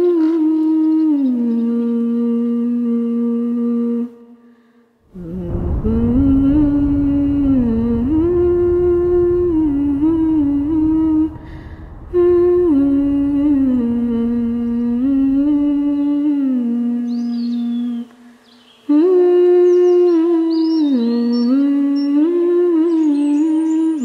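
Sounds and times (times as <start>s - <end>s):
person humming a melody: 0.0s - 4.4s, 18.9s - 24.0s
low rumble: 5.1s - 18.0s.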